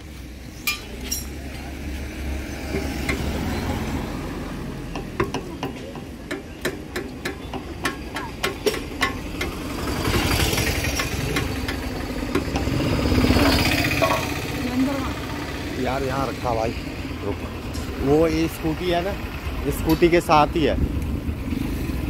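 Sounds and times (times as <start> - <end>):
vehicle engine: 0.0 - 22.0
spanner and bolts clinking: 13.4 - 14.5.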